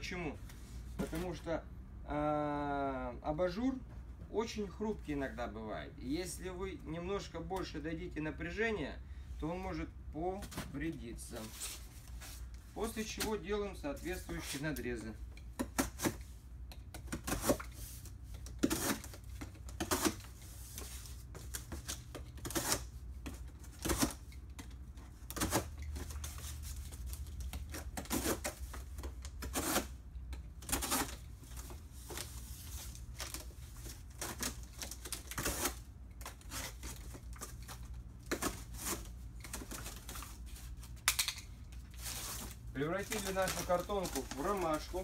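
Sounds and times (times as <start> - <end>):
utility knife cutting cardboard: 18.6 - 19.2.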